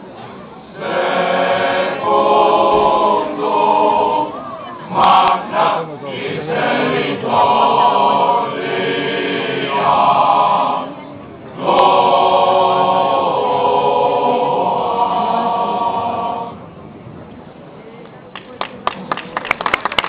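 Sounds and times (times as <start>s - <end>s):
male choir singing: 0.8s - 16.6s.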